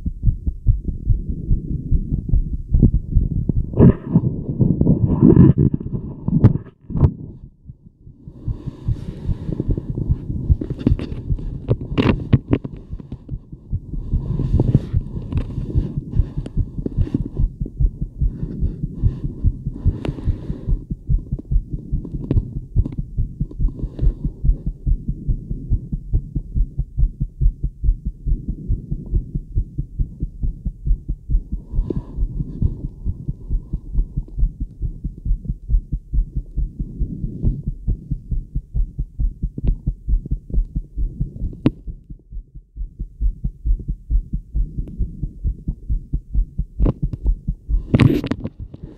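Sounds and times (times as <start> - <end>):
fast heartbeat thumps: 0.0 - 48.9
scratchy noise: 3.5 - 7.5, 8.8 - 13.4, 14.0 - 17.5, 31.7 - 33.9, 47.7 - 48.9.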